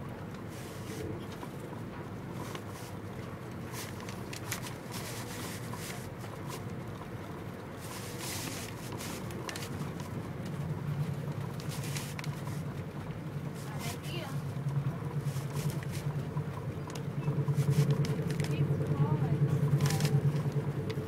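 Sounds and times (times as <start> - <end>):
train rumble inside carriage: 0.0 - 21.0
paper cards rustling and clicking: 2.4 - 3.0, 3.6 - 6.6, 7.8 - 10.5, 11.4 - 12.7, 15.2 - 16.2, 16.9 - 18.6, 19.8 - 20.5.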